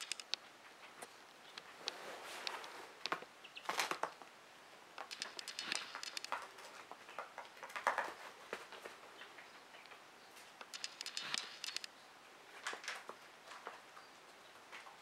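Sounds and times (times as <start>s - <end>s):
quail feet tapping on hard floor: 5.0s - 10.0s.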